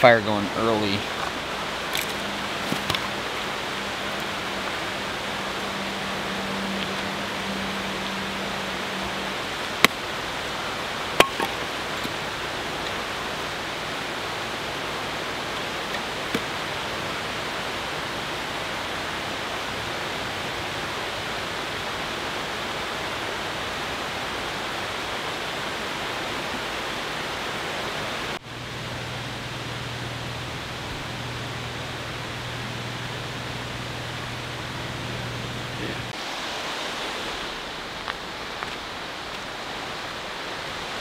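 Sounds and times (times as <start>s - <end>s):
low hum: 0.0s - 21.1s, 28.4s - 36.2s
creek rushing over rocks: 0.0s - 28.4s, 35.8s - 41.0s.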